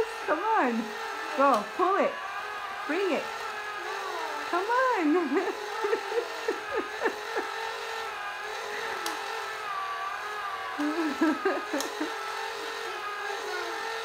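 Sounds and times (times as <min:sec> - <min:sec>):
toy motor whirring: 0:00.0 - 0:14.0.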